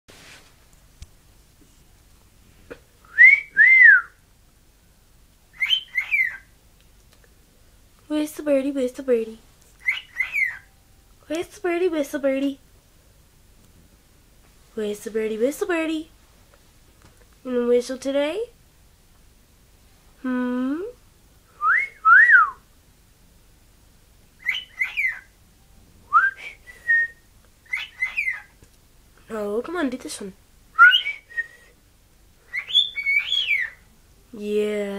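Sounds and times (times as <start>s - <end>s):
cockatiel whistling a tune: 3.1s - 4.2s, 5.6s - 6.4s, 9.8s - 10.7s, 21.6s - 22.6s, 24.4s - 25.3s, 26.1s - 28.5s, 30.8s - 31.7s, 32.5s - 33.8s
person's voice: 20.2s - 21.0s, 29.3s - 30.4s.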